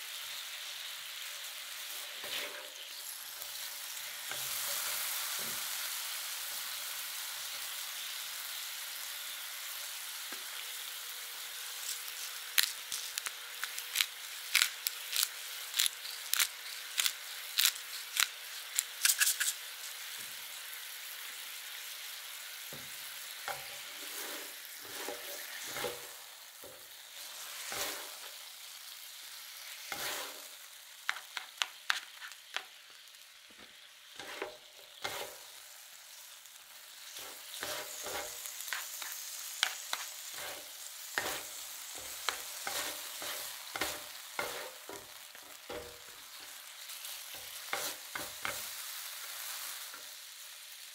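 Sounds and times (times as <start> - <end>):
meat sizzling on a griddle: 0.0 - 50.9
spatulas scraping a griddle: 1.9 - 2.9, 23.4 - 28.4, 29.7 - 32.7, 34.2 - 35.6, 37.0 - 48.8
sharp pops and crackles: 11.8 - 19.6.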